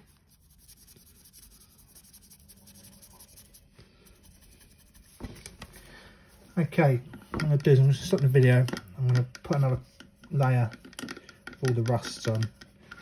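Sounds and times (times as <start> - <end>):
paintbrush scratching on plate: 0.0 - 5.3, 9.3 - 13.0.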